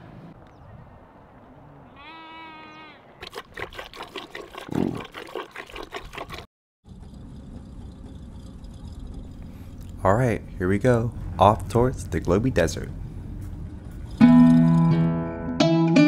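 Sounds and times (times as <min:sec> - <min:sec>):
tea pouring and splashing: 0:03.2 - 0:06.5.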